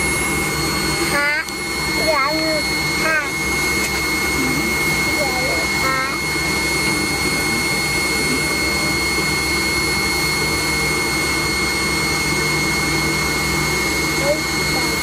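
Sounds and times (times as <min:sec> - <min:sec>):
jet engines in aircraft cabin: 0:00.0 - 0:15.0.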